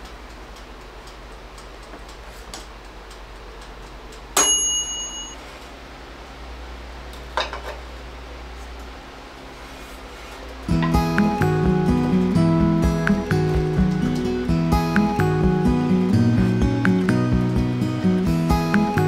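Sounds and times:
faint regular ticking: 0.0s - 4.4s
metallic clink: 4.4s - 5.4s.

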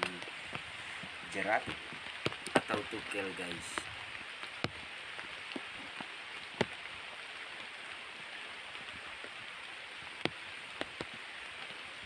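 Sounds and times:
heavy rain on foliage: 0.0s - 12.0s
sharp rain ticks: 0.0s - 12.0s.

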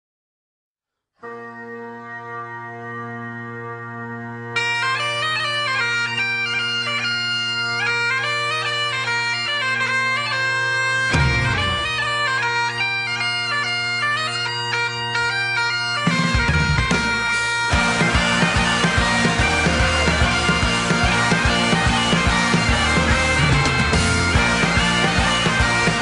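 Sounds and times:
bagpipe music: 1.2s - 26.0s
drums: 11.1s - 12.4s, 16.0s - 26.0s.

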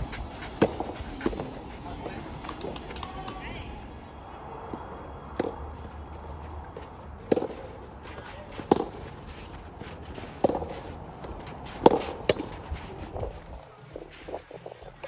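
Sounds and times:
rackets hitting tennis ball: 0.2s - 15.0s.

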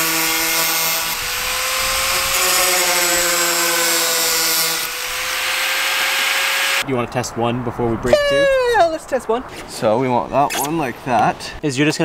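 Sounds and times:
angle grinder cutting: 0.0s - 6.8s.

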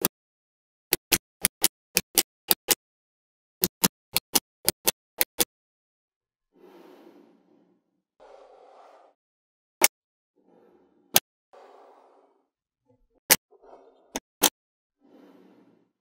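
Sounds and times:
magnetic balls snapping together: 0.9s - 2.8s, 3.6s - 5.5s, 14.2s - 14.6s.

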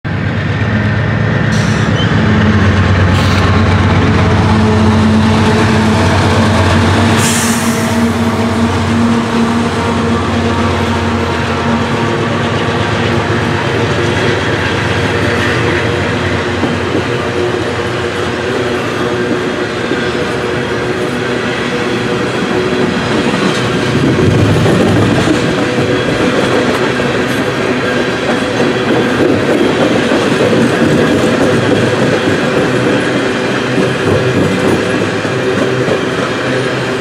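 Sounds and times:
diesel locomotive engine drone: 0.0s - 37.0s
train cars rattling over bridge: 0.1s - 37.0s.

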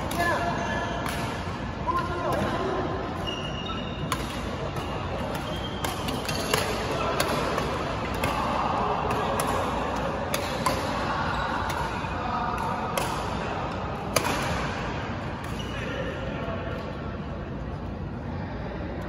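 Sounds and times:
steady hall noise: 0.0s - 19.0s
rackets striking shuttlecock: 0.9s - 1.6s, 3.2s - 8.5s, 9.1s - 11.0s, 11.6s - 14.8s.

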